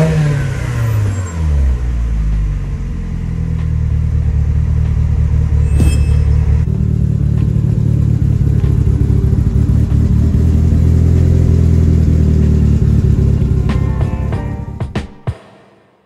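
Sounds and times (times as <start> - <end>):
car engine idling: 6.4 - 13.8.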